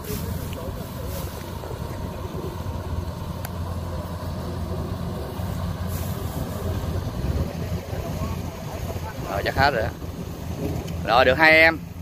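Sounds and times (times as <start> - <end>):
engine hum: 0.0 - 12.0
wind rumble on microphone: 4.6 - 11.1.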